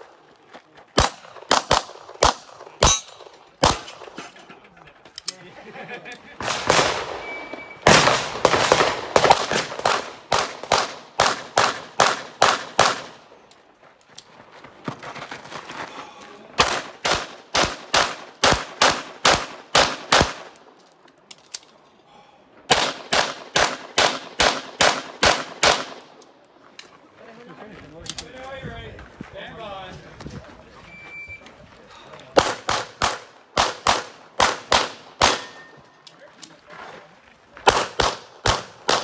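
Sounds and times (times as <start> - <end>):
handgun shots: 32.4 - 35.7.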